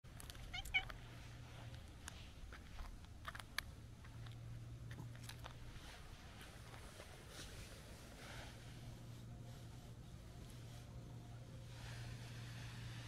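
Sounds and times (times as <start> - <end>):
cat meowing: 0.5 - 0.9.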